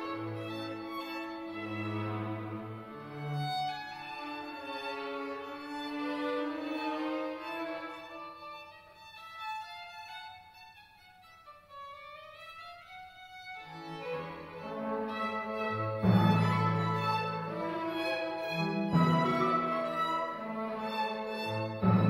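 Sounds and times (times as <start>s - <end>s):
cello and double bass low notes: 0.0s - 7.8s, 13.7s - 22.0s
violins bowing: 0.0s - 10.6s, 11.9s - 22.0s.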